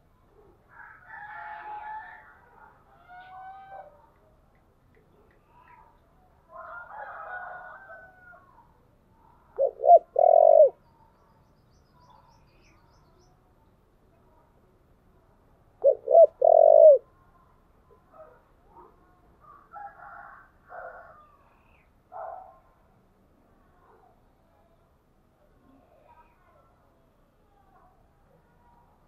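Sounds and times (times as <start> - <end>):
dove cooing: 9.5 - 10.8, 15.8 - 17.1.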